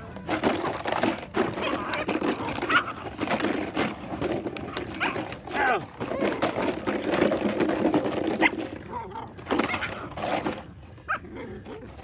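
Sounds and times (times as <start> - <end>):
puppy yipping: 1.6 - 3.1, 4.7 - 5.3, 8.3 - 10.2
puppy growling: 8.2 - 12.0.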